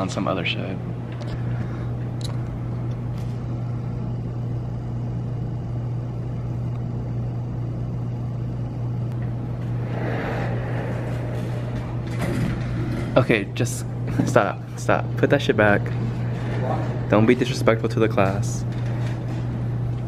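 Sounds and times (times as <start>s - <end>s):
steady low hum: 0.0s - 20.0s
even rushing noise: 9.6s - 13.2s.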